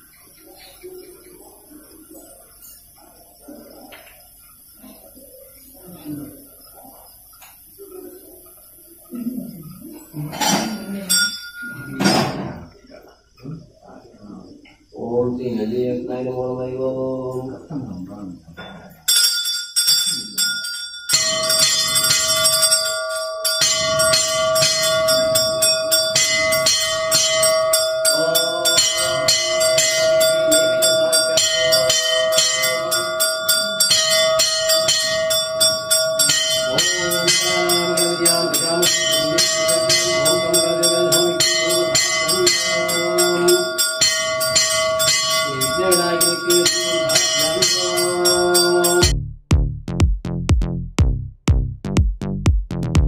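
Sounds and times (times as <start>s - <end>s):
bell rung rapidly: 19.1s - 49.1s.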